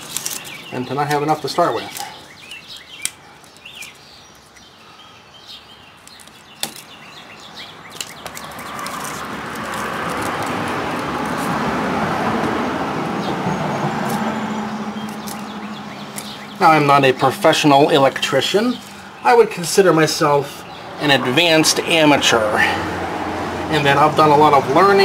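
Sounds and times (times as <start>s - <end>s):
vehicle passing by: 8.3s - 19.2s, 19.8s - 25.0s.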